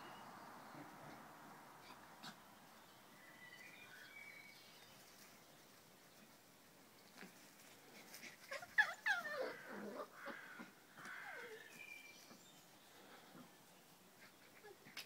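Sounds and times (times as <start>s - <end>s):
puppy yelping and whining: 8.4s - 10.4s.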